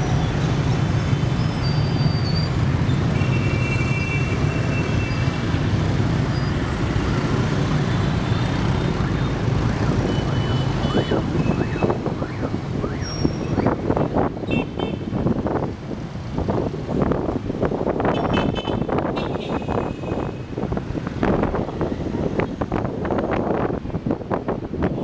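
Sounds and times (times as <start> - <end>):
motorbike traffic engines: 0.0 - 25.0
wind buffeting microphone: 20.3 - 25.0.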